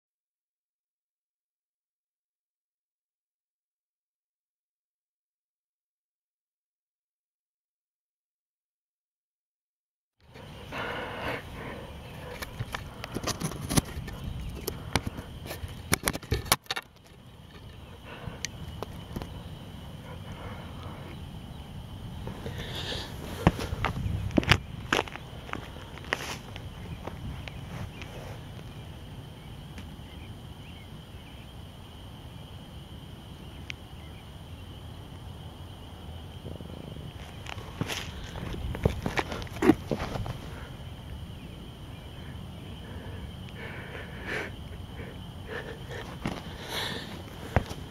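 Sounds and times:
low background rumble: 17.2 - 47.9.

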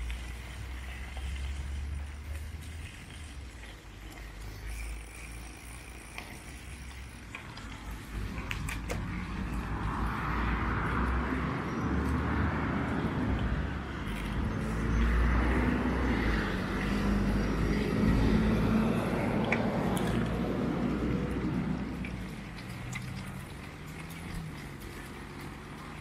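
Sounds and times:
road traffic noise: 0.0 - 26.0.

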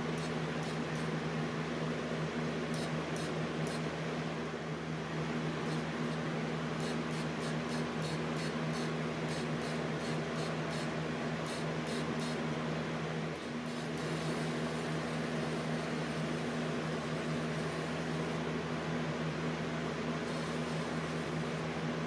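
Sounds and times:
spray gun air rush: 0.0 - 1.2, 2.7 - 3.9, 5.6 - 12.4, 13.4 - 18.4, 20.3 - 21.7
constant low hum: 0.0 - 22.0.

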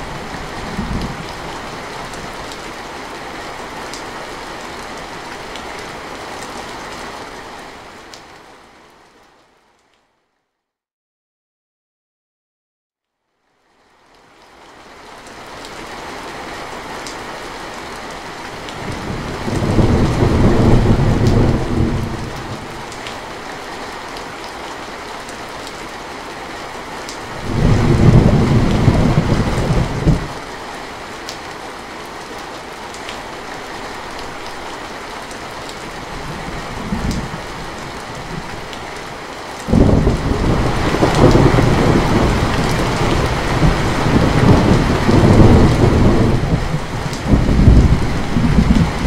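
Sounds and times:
heavy rain falling: 0.0 - 9.3, 13.8 - 49.0
thunder rumbling: 18.8 - 22.9, 27.3 - 30.4, 35.9 - 38.7, 39.7 - 49.0.

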